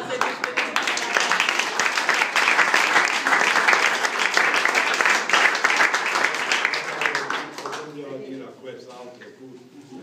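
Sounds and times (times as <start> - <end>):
crowd applauding: 0.0 - 8.0.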